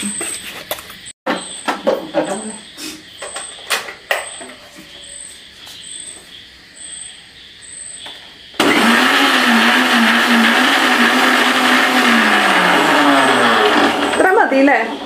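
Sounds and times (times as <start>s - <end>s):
mixer grinder running: 8.6s - 15.0s.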